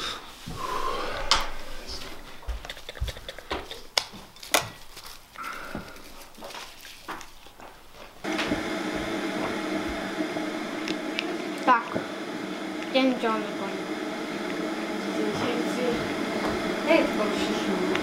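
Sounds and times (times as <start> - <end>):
wrappers crinkling: 2.8 - 8.2
steady hum: 8.2 - 18.0.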